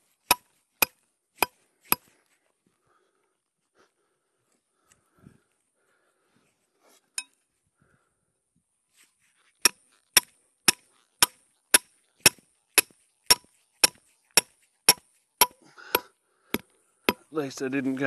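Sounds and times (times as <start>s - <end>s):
hammer blows on metal stake: 9.6s - 17.3s.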